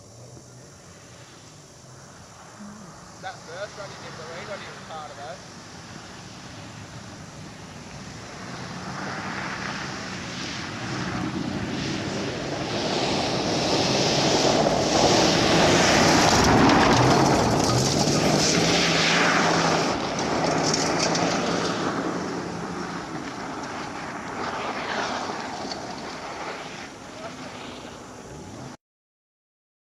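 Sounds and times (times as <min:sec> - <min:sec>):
tyres hissing on dirt: 0:00.2 - 0:10.1
car engine running hard: 0:02.3 - 0:28.8.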